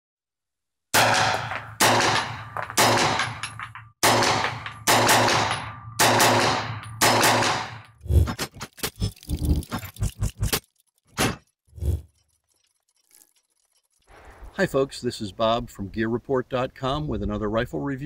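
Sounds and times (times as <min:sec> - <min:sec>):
rifle shots ringing out: 0:01.0 - 0:03.4, 0:04.0 - 0:07.8
small mechanical clicks: 0:08.0 - 0:14.5.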